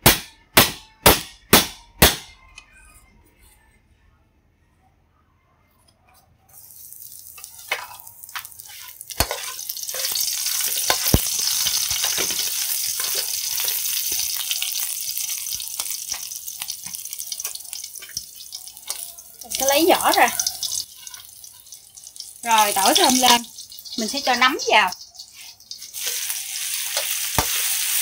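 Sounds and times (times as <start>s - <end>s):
garlic sizzling in hot oil: 6.6s - 28.0s
spatula tapping a wok: 7.7s - 26.3s, 26.9s - 27.7s.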